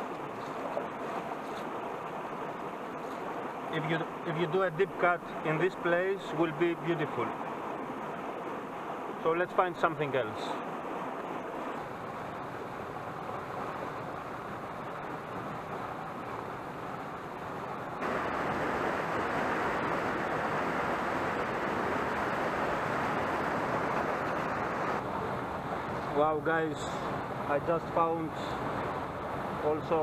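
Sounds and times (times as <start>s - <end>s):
stream rushing over rocks: 0.0s - 30.0s.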